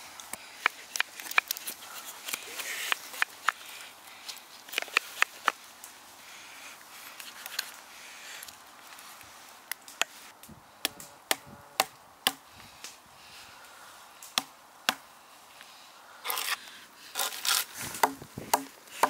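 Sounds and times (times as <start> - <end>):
knife shaving wood: 0.3 - 5.6, 16.2 - 18.1.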